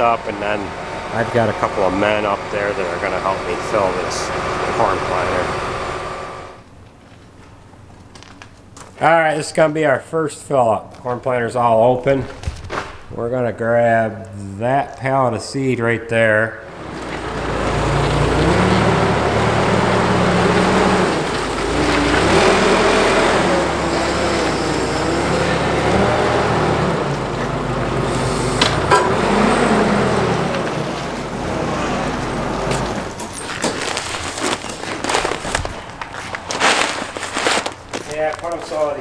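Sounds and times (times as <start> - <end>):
forklift engine running: 0.0 - 6.8, 16.6 - 38.6
paper bags clicking and rustling: 32.8 - 39.0.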